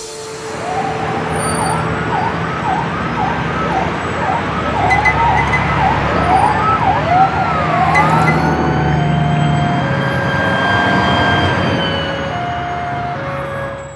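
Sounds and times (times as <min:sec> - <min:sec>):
swooping electronic tones: 0:00.6 - 0:10.9.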